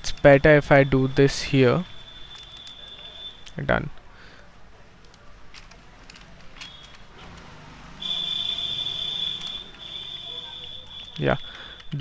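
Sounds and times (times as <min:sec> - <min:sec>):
steady high-pitched tone: 0:00.0 - 0:03.5, 0:08.0 - 0:12.0.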